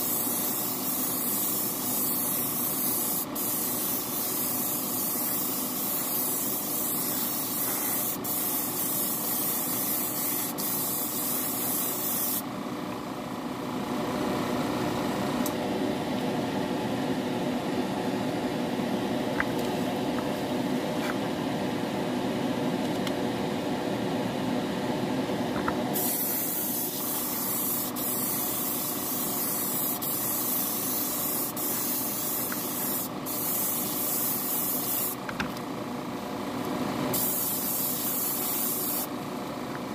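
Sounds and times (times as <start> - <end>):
airbrush hissing: 0.0 - 12.5, 26.0 - 35.2, 37.1 - 39.1
steady motor hum: 0.0 - 39.9.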